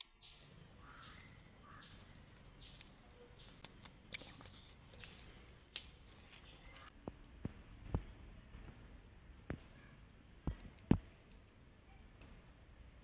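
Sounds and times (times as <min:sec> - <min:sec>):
insect trilling: 0:00.0 - 0:06.9.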